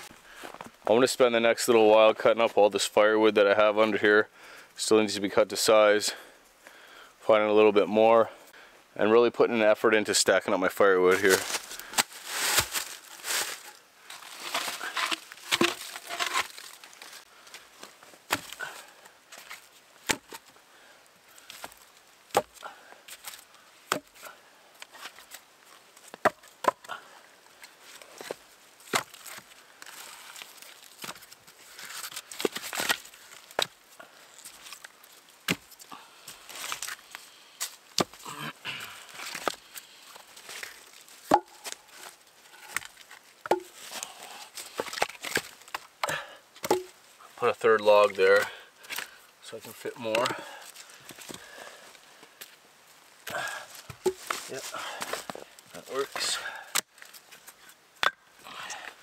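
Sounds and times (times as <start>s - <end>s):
wood rustling and scraping: 11.0s - 20.6s, 21.4s - 27.0s, 27.6s - 38.3s, 39.0s - 52.6s, 53.2s - 57.8s
sharp wooden knocks: 41.3s - 41.6s, 43.4s - 43.7s, 46.0s - 46.9s.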